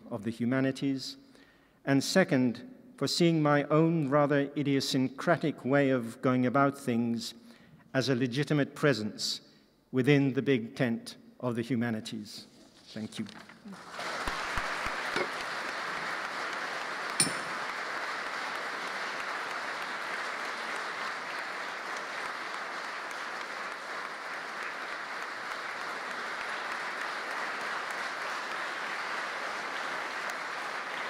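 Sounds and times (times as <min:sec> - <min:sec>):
audience applauding: 0:13.7 - 0:31.0
short sharp ping: 0:17.2 - 0:17.7.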